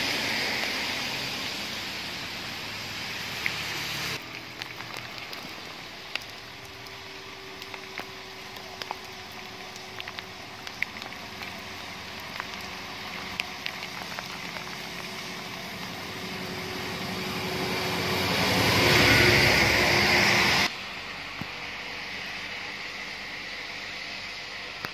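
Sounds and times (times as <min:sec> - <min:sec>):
bus on wet road: 0:00.0 - 0:24.9
steady rain: 0:00.0 - 0:24.9
drops ticking: 0:04.2 - 0:17.1.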